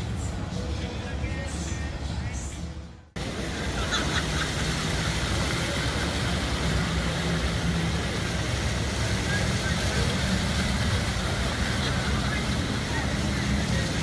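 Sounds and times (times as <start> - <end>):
music: 0.0 - 4.0
fountain water rushing: 3.2 - 14.0.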